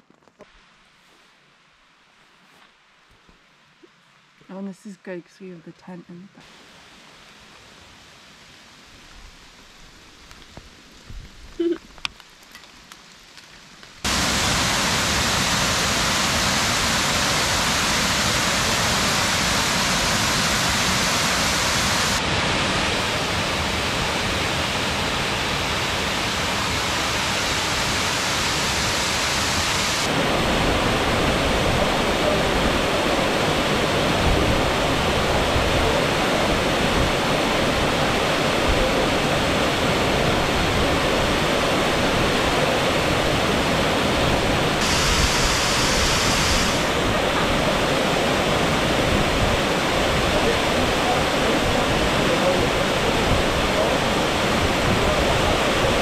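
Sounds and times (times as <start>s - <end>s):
rushing flowing water: 14.0s - 56.0s.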